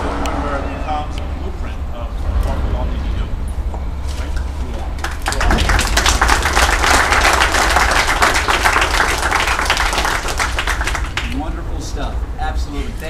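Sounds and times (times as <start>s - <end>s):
crowd applauding: 4.3s - 11.4s.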